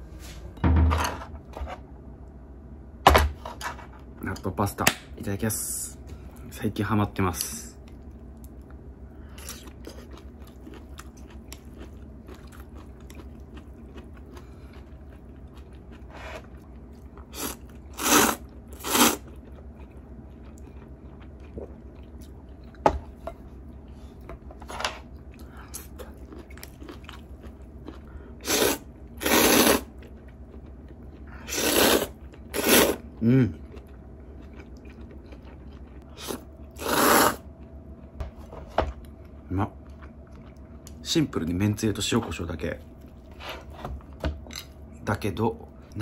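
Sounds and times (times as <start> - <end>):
chewing: 7.8 - 22.8, 25.2 - 28.2, 32.1 - 37.0, 39.0 - 41.0
person slurping noodles: 17.3 - 19.2, 28.4 - 29.9, 31.4 - 33.0, 36.1 - 37.4.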